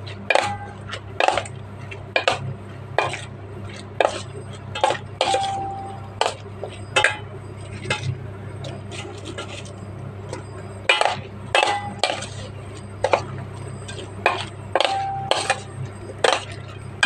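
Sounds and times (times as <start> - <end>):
steady low hum: 0.0 - 17.0
metal spoon clinking in bowl: 13.0 - 16.8.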